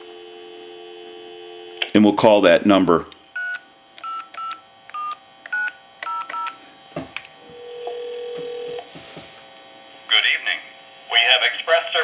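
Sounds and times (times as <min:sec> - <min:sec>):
touch-tone keypad beeps: 0:03.4 - 0:06.5
telephone ringback tone: 0:07.6 - 0:08.8.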